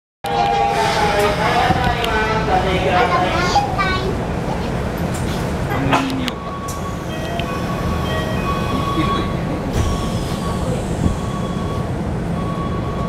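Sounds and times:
train low hum: 0.2s - 13.0s
train doors sliding shut: 4.9s - 12.4s.

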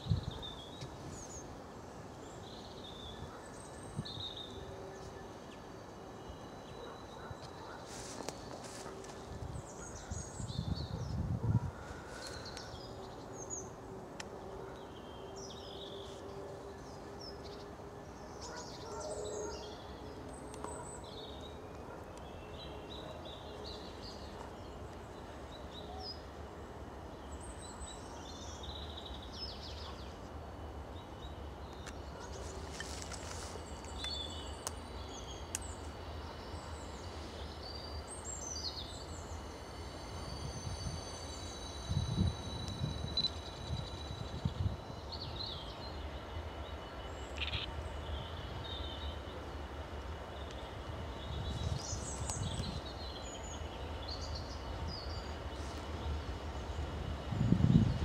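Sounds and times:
distant diesel locomotive rumble: 0.0s - 58.0s
faint whine: 0.0s - 58.0s
small birds chirping: 43.3s - 49.4s.

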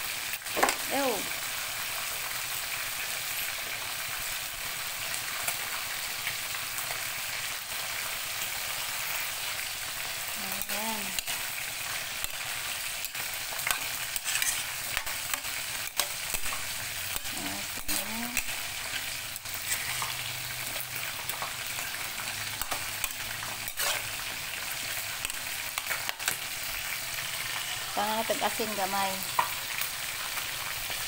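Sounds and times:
vegetables sizzling in a wok: 0.0s - 31.0s
metal spatula scraping a pan: 11.2s - 27.9s.

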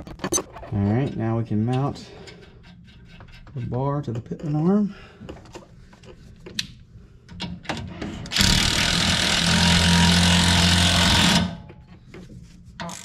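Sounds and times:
impact wrench running: 8.3s - 11.6s.

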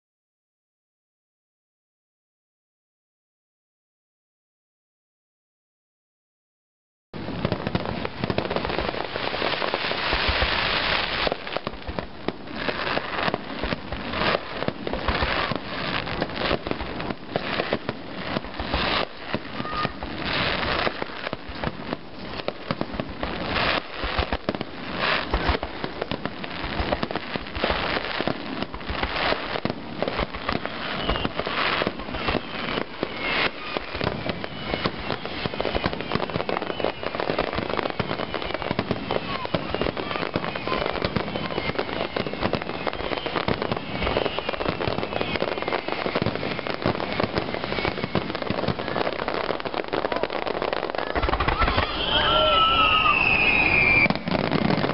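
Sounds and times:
fireworks bursting and crackling: 7.2s - 54.9s
fireworks whistling: 7.2s - 54.9s.

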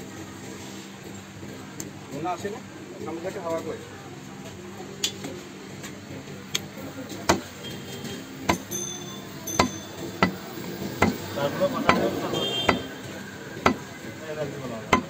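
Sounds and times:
cleaver chopping meat on wood: 7.2s - 7.5s, 8.5s - 8.7s, 10.2s - 10.4s, 11.0s - 11.2s, 11.8s - 12.9s, 13.6s - 13.9s.

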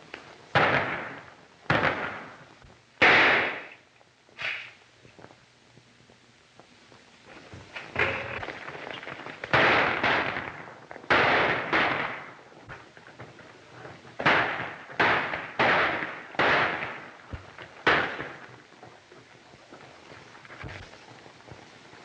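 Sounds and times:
gunshots: 0.5s - 4.8s, 7.8s - 13.3s, 14.2s - 18.7s.

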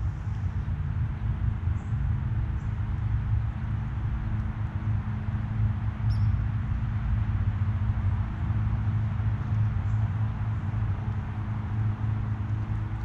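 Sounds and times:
low mechanical hum: 0.0s - 13.0s
bird chirp: 6.1s - 6.4s.

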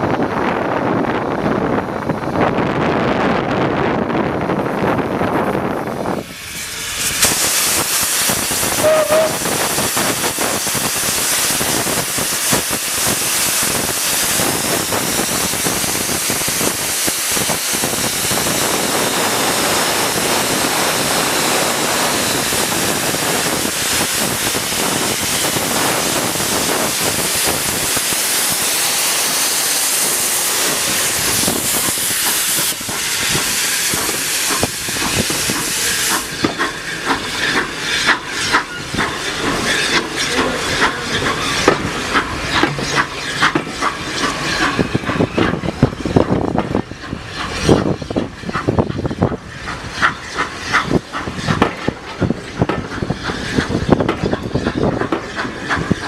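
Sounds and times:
wind on microphone: 0.0s - 6.5s
steam locomotive hissing steam: 5.2s - 56.0s.

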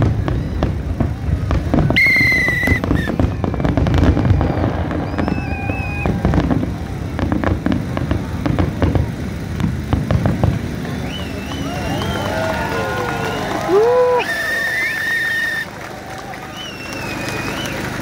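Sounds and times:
low rumble: 0.0s - 14.1s
fireworks bangs and crackles: 0.0s - 18.0s
wavering firework whistle: 0.0s - 18.0s.

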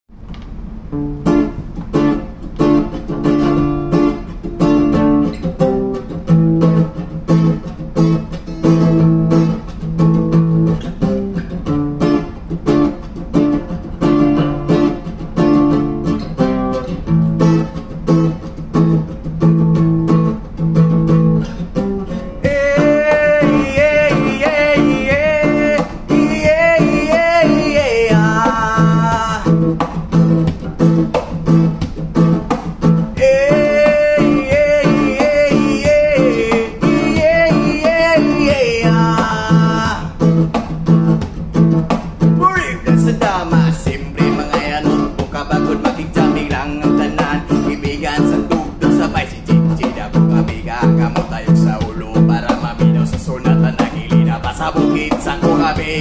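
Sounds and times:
classical guitar strumming chords: 0.1s - 56.0s
man singing: 22.4s - 29.8s, 33.2s - 40.3s, 42.4s - 56.0s.

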